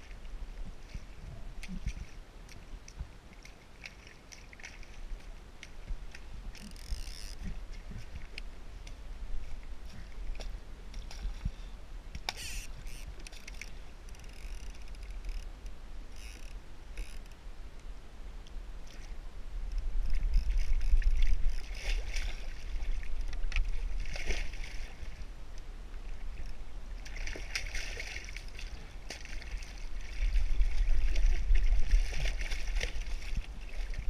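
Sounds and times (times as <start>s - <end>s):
wind rumble on microphone: 0.0s - 3.4s, 4.8s - 34.0s
small clicks of fishing reel: 5.6s - 7.6s, 12.1s - 19.1s, 19.7s - 21.9s
short rasps of fishing line: 6.6s - 7.6s, 12.2s - 15.5s, 16.1s - 17.4s.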